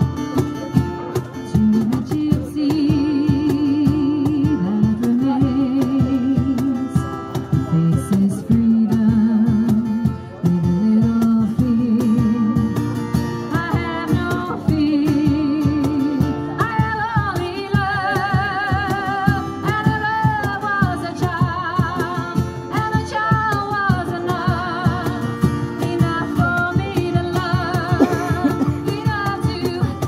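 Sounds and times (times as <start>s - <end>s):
acoustic guitar strummed: 0.0s - 30.0s
steady percussive beat: 26.8s - 30.0s.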